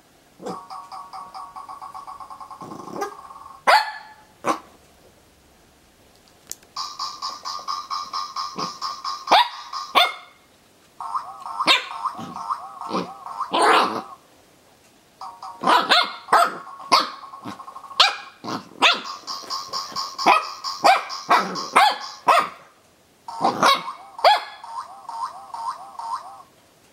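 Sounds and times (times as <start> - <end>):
puppy barking and growling: 0.4 - 0.7, 2.6 - 4.8, 8.6 - 10.3, 11.6 - 14.2, 15.6 - 19.2, 20.2 - 22.7, 23.3 - 24.6
warbling electronic toy tone: 0.4 - 3.6, 11.0 - 14.2, 23.3 - 26.5.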